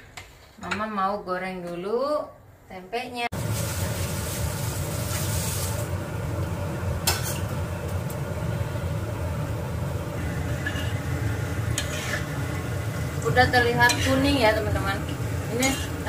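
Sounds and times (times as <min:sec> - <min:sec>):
food sizzling in hot oil: 0:03.3 - 0:16.0.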